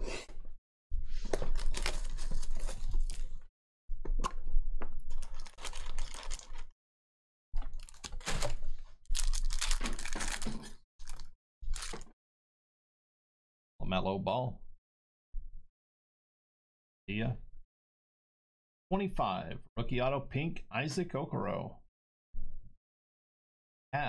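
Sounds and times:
foil crinkling: 0:01.4 - 0:03.4, 0:05.1 - 0:06.7, 0:07.7 - 0:12.1.

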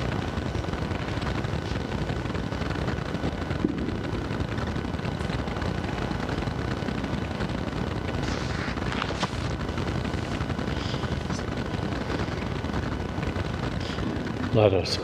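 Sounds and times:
low rumble: 0:00.0 - 0:14.5
paper pages rustling: 0:08.2 - 0:09.5.

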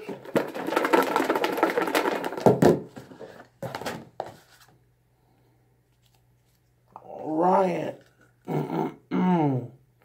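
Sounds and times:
paper slips rattling in plastic tub: 0:00.0 - 0:04.0
plastic tub knocking: 0:00.0 - 0:04.4.

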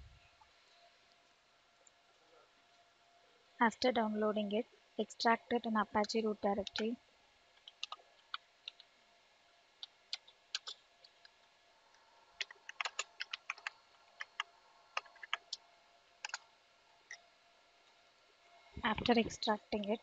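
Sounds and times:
computer keyboard typing: 0:05.9 - 0:07.0, 0:07.6 - 0:08.9, 0:09.8 - 0:11.2, 0:12.4 - 0:15.6, 0:16.2 - 0:16.4.

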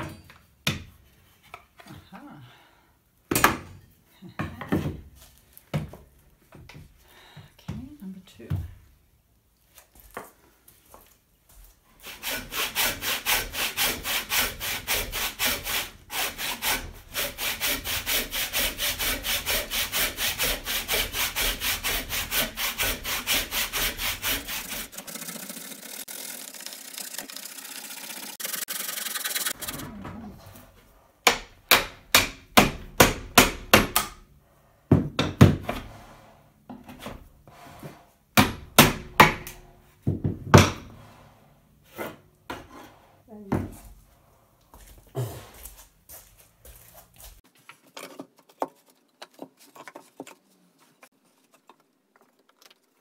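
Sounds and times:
handsaw cutting wood: 0:12.0 - 0:30.0.

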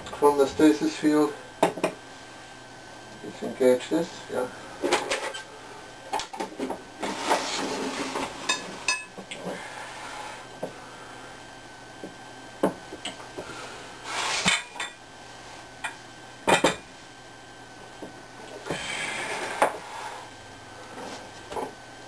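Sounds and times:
glass dishes clinking: 0:08.5 - 0:09.1.

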